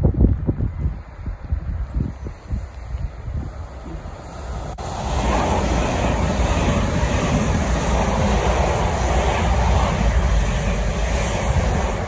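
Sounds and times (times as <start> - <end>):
train wheels rumbling on rail: 2.5 - 12.0.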